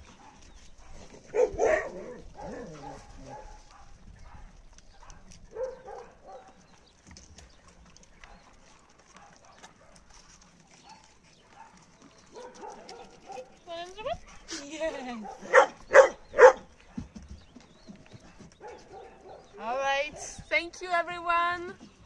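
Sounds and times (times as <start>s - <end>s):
dogs barking: 0.1s - 6.7s, 9.0s - 10.1s, 10.8s - 13.6s, 15.1s - 17.2s, 18.3s - 20.3s.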